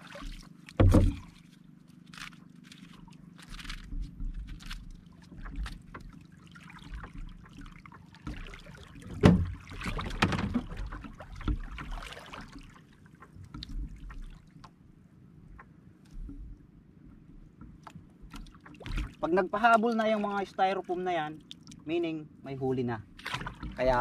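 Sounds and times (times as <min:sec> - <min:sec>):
water lapping at hull: 0:00.0 - 0:24.0
thump: 0:00.8 - 0:01.2, 0:09.2 - 0:10.6
fishing gear knocks and clicks: 0:02.1 - 0:06.1.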